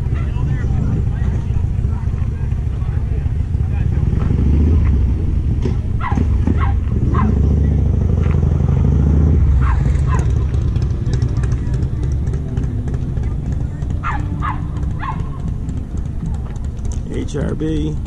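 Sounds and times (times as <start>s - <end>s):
vehicle engine idling: 0.0s - 18.0s
small dog yipping: 6.0s - 7.4s, 9.6s - 10.4s, 14.0s - 15.4s.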